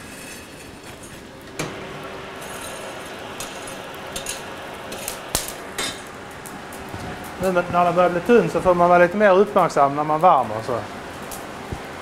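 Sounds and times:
steady background noise: 0.0 - 12.0
metal tongs clinking: 2.4 - 6.1.

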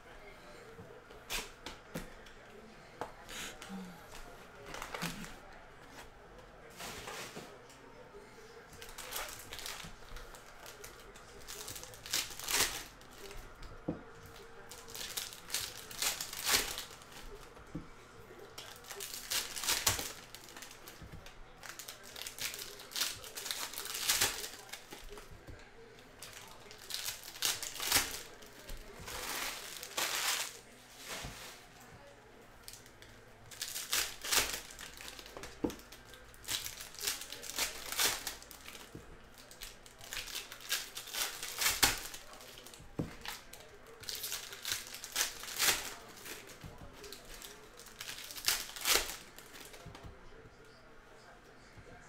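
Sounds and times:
foil wrappers tearing and crinkling: 4.6 - 5.4, 8.8 - 13.6, 14.3 - 17.6, 18.3 - 25.3, 26.2 - 31.6, 32.6 - 49.8.

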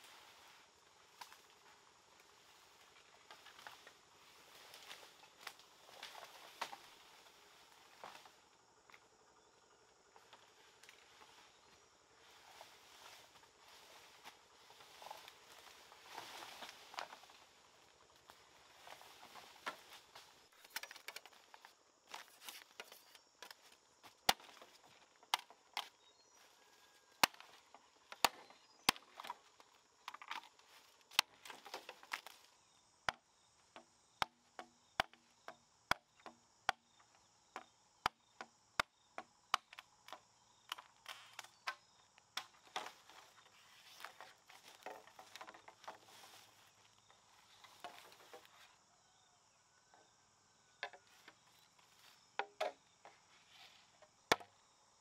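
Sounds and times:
bamboo stems and leaves rustling: 0.0 - 32.6, 40.1 - 48.8
blade chopping bamboo: 24.2 - 25.9, 27.2 - 29.4.

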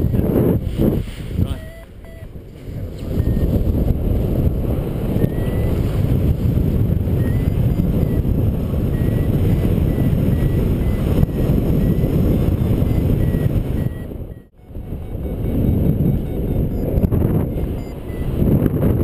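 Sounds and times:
wind buffeting microphone: 0.0 - 19.0
faint short beeps: 1.4 - 2.3, 3.0 - 3.6, 5.2 - 5.8, 7.2 - 8.2, 8.9 - 18.4.

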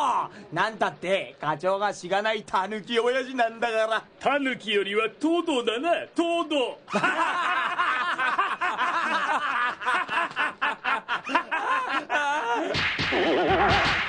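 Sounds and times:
men laughing: 6.9 - 13.9.

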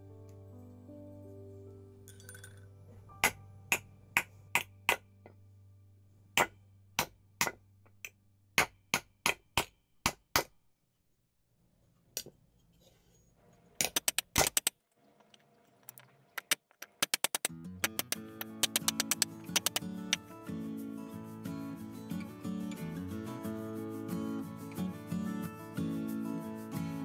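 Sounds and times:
metal ball clinking on spoon: 2.1 - 2.7.

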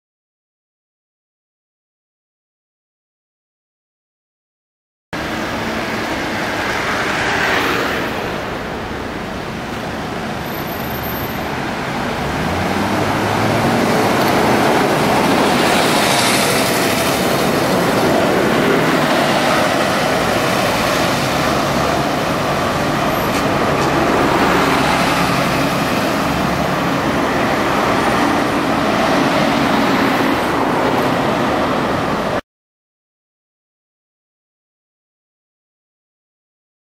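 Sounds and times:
road traffic noise: 5.2 - 32.4
bus diesel engine running: 8.0 - 32.4.

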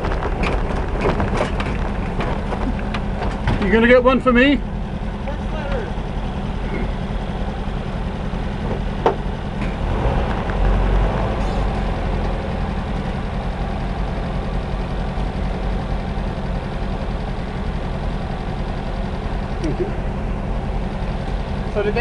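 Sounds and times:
low rumble: 0.0 - 16.2
vehicle engine idling: 0.0 - 22.0.

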